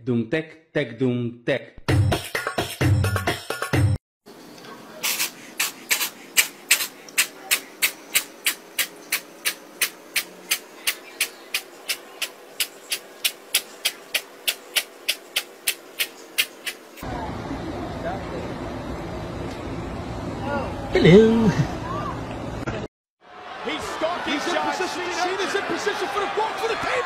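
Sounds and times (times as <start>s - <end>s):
beatboxed music: 1.8s - 4.0s.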